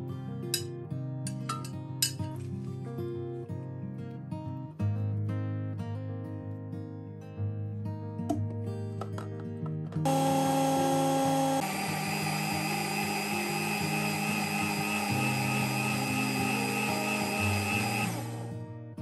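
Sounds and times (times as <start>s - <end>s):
blender motor running: 10.1s - 18.6s.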